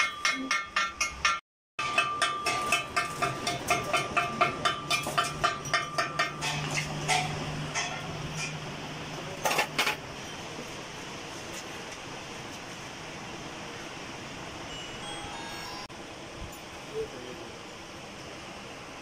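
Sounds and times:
hammer tapping on metal shaft: 0.0 - 8.6.

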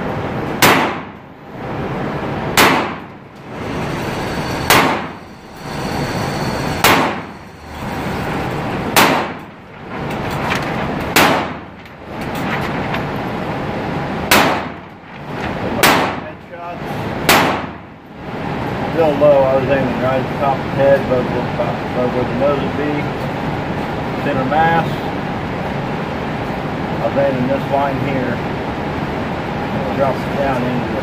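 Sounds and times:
metallic clank: 2.6 - 13.2
motorized target carrier running: 3.1 - 15.9.

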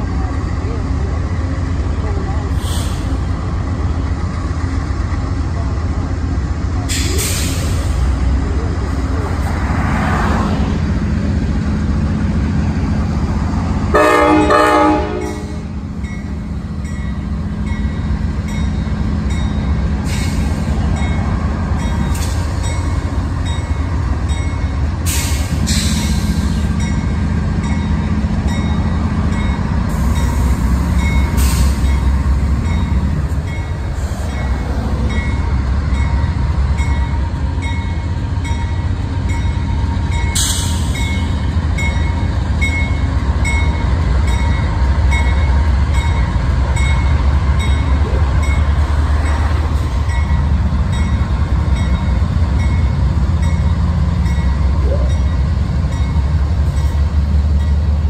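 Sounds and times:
diesel locomotive rumble: 0.0 - 58.0
train horn blast: 13.9 - 15.8.

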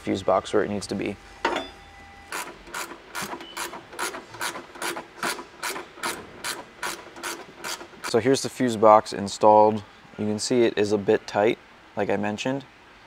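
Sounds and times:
ratchet wrench clicking: 4.0 - 8.2.

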